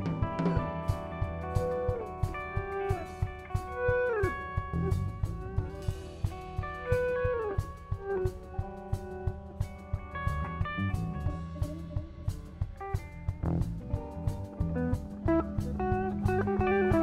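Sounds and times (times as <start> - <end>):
bass guitar: 0.0 - 17.0
drum kit steady beat: 0.0 - 17.0
electric guitars: 0.0 - 17.0
harmonica bending notes: 14.5 - 17.0.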